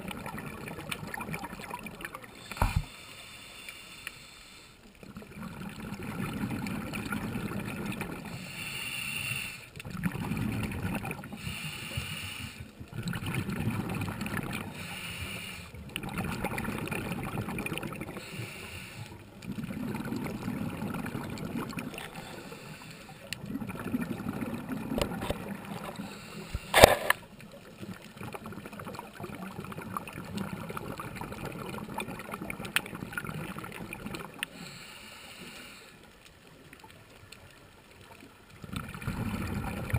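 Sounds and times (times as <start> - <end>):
regulator bubbles gurgling: 0.0 - 2.9, 5.0 - 8.5, 9.8 - 11.6, 12.6 - 14.9, 15.7 - 34.8, 36.6 - 39.9
regulator inhale hiss: 2.3 - 5.0, 8.3 - 9.8, 11.3 - 12.8, 14.7 - 15.8, 18.2 - 19.3, 22.0 - 23.3, 26.0 - 27.2, 34.5 - 36.2.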